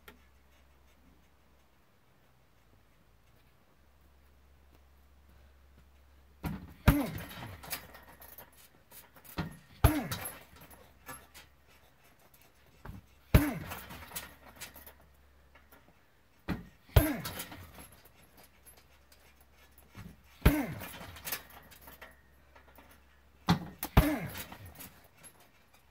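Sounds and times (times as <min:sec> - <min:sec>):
kicks thudding on punching bag: 0:06.4 - 0:07.9, 0:09.3 - 0:10.4, 0:12.8 - 0:14.3, 0:16.4 - 0:17.8, 0:20.0 - 0:21.2, 0:23.4 - 0:24.9
chain rattling: 0:06.5 - 0:25.9
person grunting: 0:06.9 - 0:07.2, 0:13.4 - 0:13.7, 0:20.4 - 0:20.8, 0:23.9 - 0:24.4.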